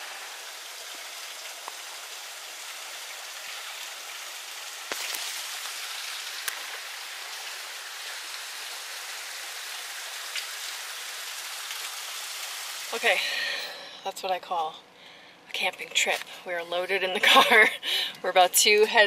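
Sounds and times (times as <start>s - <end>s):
waterfall hissing: 0.0s - 13.6s.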